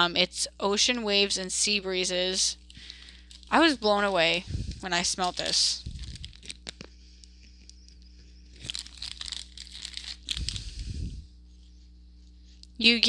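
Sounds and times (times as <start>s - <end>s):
plastic bags crinkling: 2.6s - 10.8s.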